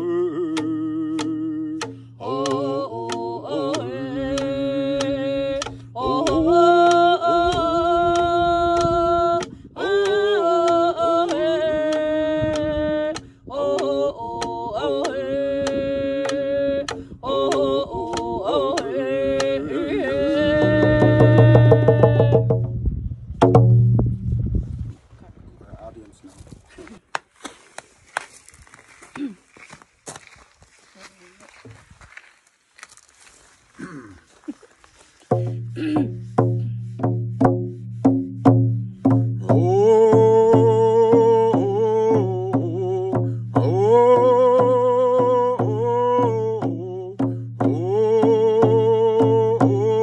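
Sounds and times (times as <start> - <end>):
man and woman singing: 0.0 - 22.6, 39.0 - 50.0
frame drums beaten: 20.5 - 22.8, 23.4 - 24.2, 35.3 - 50.0.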